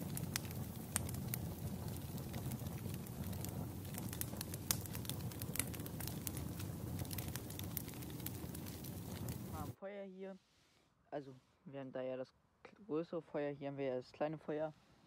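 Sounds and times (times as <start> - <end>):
campfire crackling and popping: 0.0 - 9.8.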